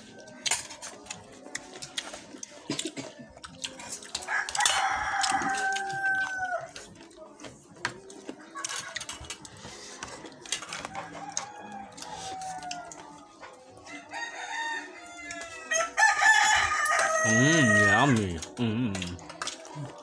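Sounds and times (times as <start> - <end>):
rooster crowing: 4.3 - 6.7, 10.9 - 13.1, 13.9 - 18.2.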